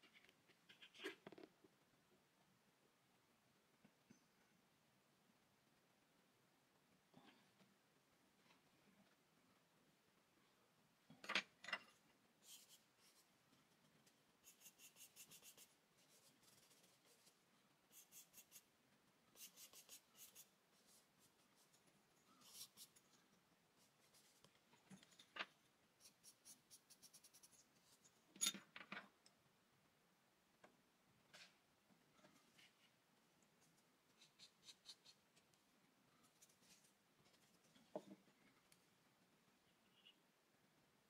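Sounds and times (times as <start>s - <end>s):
pencil scratching on paper: 12.4s - 13.3s, 14.4s - 18.7s, 19.3s - 23.1s, 26.0s - 28.0s, 34.1s - 35.3s.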